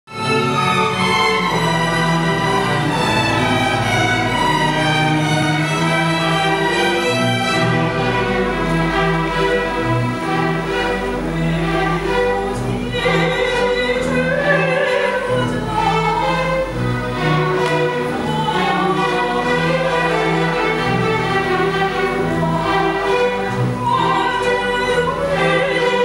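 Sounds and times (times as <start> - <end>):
string orchestra playing: 0.1 - 26.0
woman singing operatically: 11.4 - 16.7, 17.4 - 20.5, 22.0 - 26.0.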